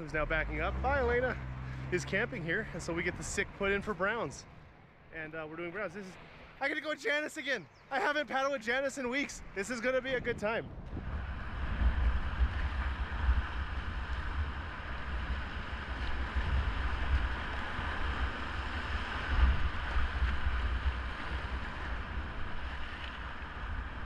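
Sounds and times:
wind buffeting microphone: 0:00.0 - 0:04.7, 0:09.1 - 0:24.0
river rushing: 0:00.0 - 0:04.8.

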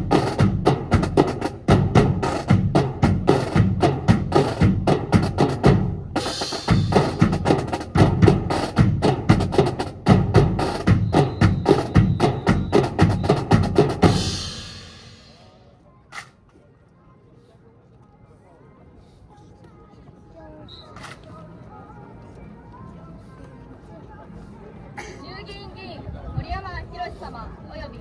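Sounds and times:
snare and bass drums marching cadence: 0:00.0 - 0:15.4.

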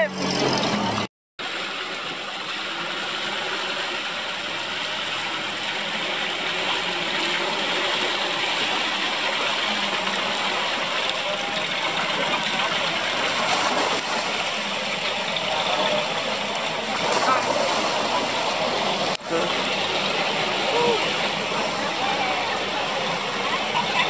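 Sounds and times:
off-road vehicle engine running: 0:00.0 - 0:24.0.

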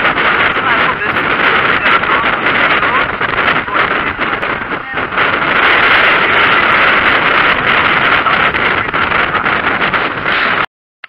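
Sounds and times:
bus engine rumble: 0:00.0 - 0:10.6
road noise: 0:00.0 - 0:10.6.

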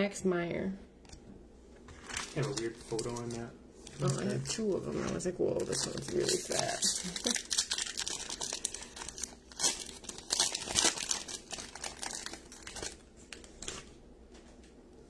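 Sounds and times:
foil wrapper tearing and crinkling: 0:02.0 - 0:04.8, 0:05.6 - 0:13.9.

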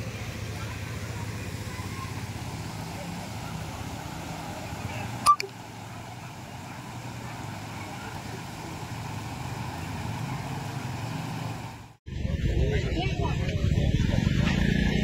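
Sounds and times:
floodwater rushing: 0:00.0 - 0:12.0
sharp click: 0:05.3 - 0:05.5.

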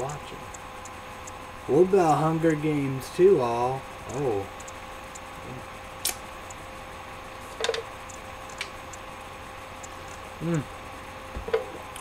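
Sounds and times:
steady background hum: 0:00.0 - 0:12.0
short hum-like vocal sound: 0:05.4 - 0:06.4, 0:09.9 - 0:12.0.

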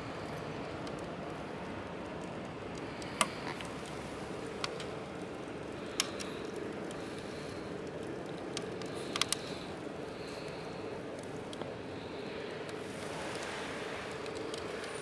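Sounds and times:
steady hiss: 0:00.0 - 0:15.0
wood crackling and popping in stove: 0:00.0 - 0:15.0.

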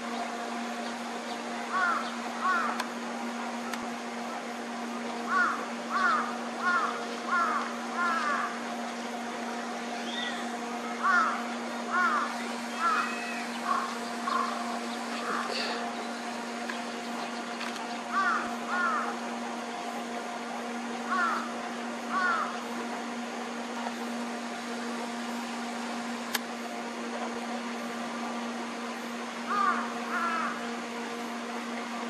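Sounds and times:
steady low hum: 0:00.0 - 0:32.0
bird calling: 0:00.8 - 0:02.8, 0:05.3 - 0:19.2, 0:21.1 - 0:22.8, 0:29.5 - 0:30.8.

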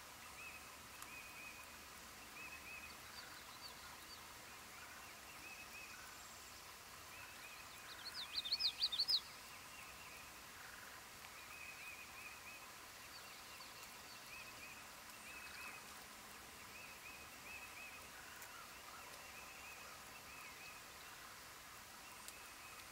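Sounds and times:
bird chirps: 0:07.2 - 0:10.3
bird singing sharp repeated notes: 0:07.9 - 0:09.3.

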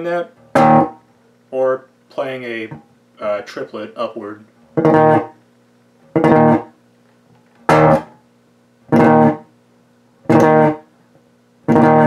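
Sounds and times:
electric bass chords: 0:00.0 - 0:01.0, 0:04.8 - 0:05.4, 0:06.1 - 0:06.8, 0:07.7 - 0:08.2, 0:08.9 - 0:09.5, 0:10.3 - 0:10.9, 0:11.7 - 0:12.0.

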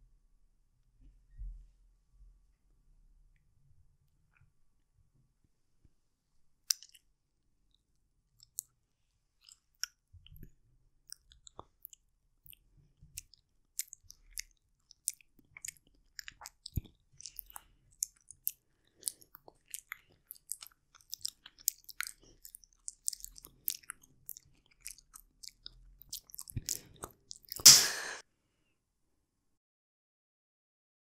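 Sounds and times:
person chewing wet fruit: 0:06.6 - 0:07.1, 0:08.4 - 0:08.8, 0:09.4 - 0:28.2.

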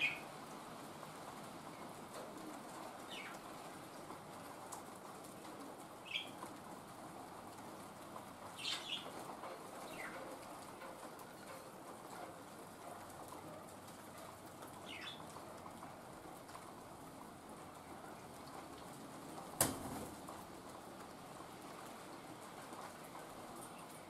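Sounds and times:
rain patter: 0:00.0 - 0:24.0.

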